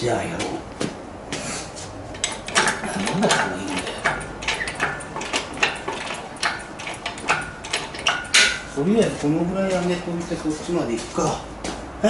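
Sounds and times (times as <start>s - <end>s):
hoist pump metallic clicks and clanks: 2.1s - 9.1s.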